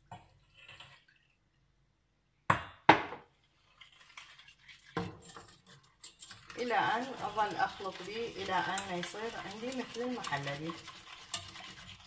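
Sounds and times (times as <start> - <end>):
spoon scraping and clinking in pan: 3.8 - 12.0.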